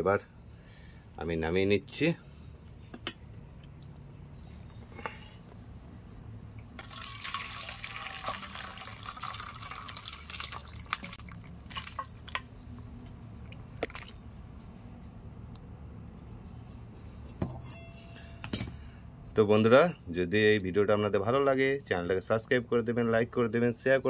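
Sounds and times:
liquid pouring and splashing: 6.8 - 12.7, 13.4 - 14.2.

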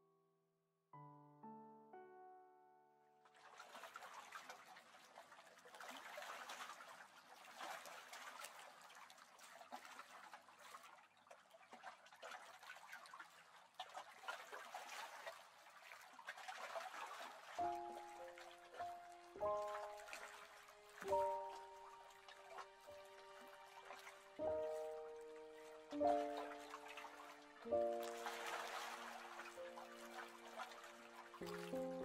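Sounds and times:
water trickling and lapping: 3.2 - 32.0.

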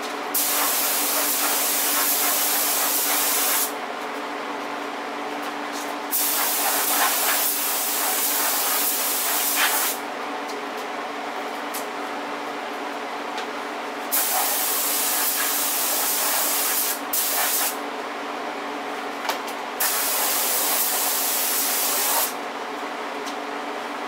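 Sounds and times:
spray gun hissing: 0.4 - 3.7, 6.1 - 10.0, 14.1 - 17.8, 19.8 - 22.3.

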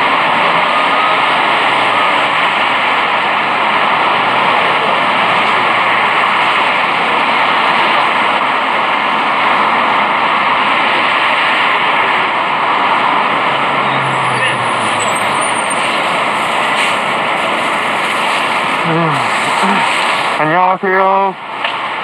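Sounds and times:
city street rushing noise: 0.0 - 22.0.

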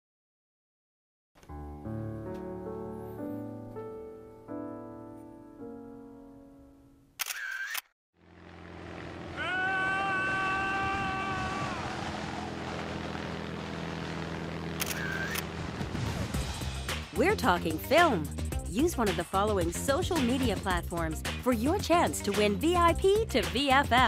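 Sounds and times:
fuller music with held tone: 1.4 - 7.1
camera shutter sound effect: 7.2 - 8.0, 14.8 - 15.4.

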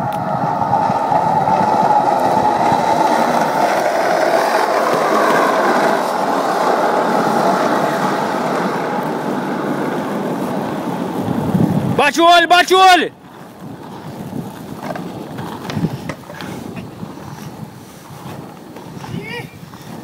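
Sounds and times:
skateboard wheels rolling on asphalt: 0.0 - 20.0.

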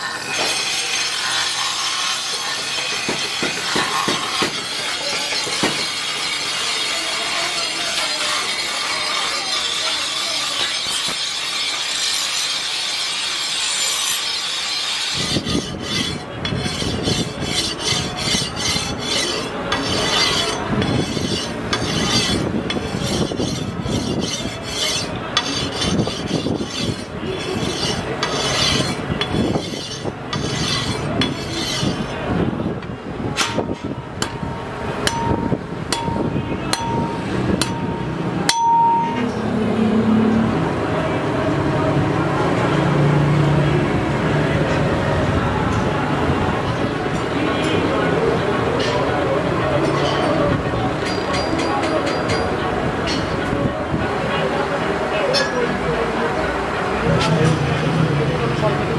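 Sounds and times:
grinding hiss: 0.0 - 32.2
blade rasping on whetstone: 0.1 - 32.2
ringing metal taps: 33.4 - 39.4.

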